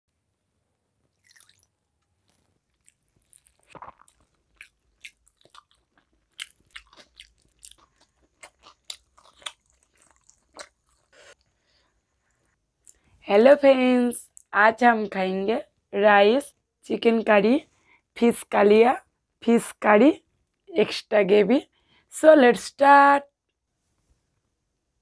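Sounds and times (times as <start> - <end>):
eating with wet clicks: 1.1 - 11.5
lip smacks and chewing: 1.2 - 11.5.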